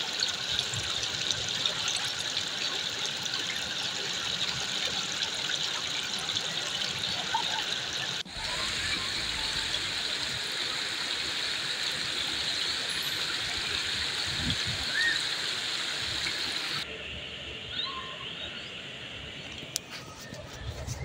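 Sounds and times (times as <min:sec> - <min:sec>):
water rushing among rocks: 0:00.0 - 0:16.9.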